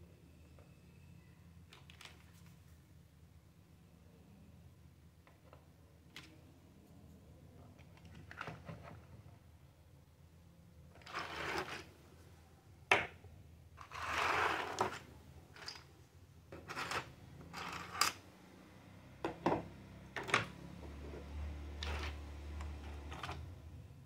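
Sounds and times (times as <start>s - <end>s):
plastic pieces scraping on table: 11.0s - 11.9s, 13.8s - 15.9s, 16.5s - 18.2s, 21.8s - 23.5s.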